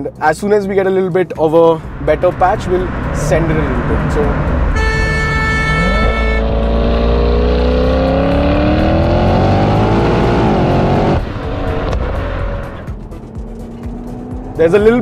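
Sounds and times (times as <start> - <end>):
car engine accelerating hard: 1.8 - 15.0
car horn: 4.4 - 7.0.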